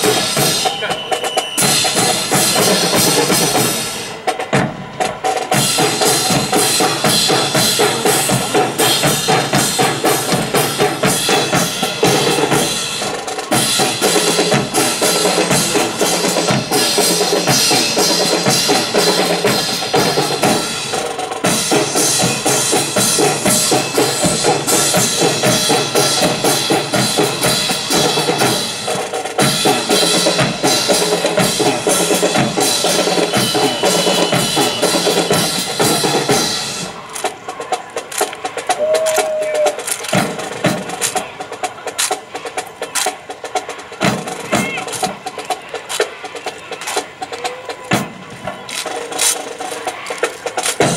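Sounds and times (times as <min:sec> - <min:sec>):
marching band playing: 0:00.0 - 0:50.9
steady drum beat: 0:00.0 - 0:50.9.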